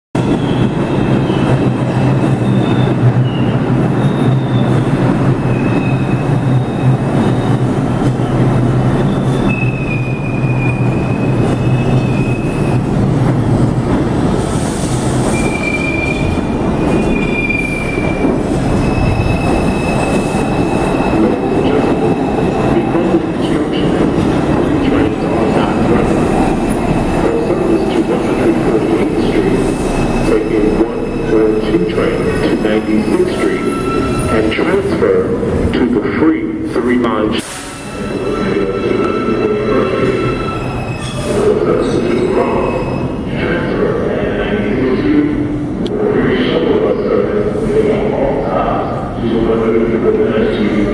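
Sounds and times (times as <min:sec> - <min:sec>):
low hum from train cars: 0:00.2 - 0:50.9
subway train wheels rumbling: 0:00.2 - 0:50.9
high wheel squeals: 0:02.2 - 0:12.8, 0:15.2 - 0:22.8, 0:28.8 - 0:34.6.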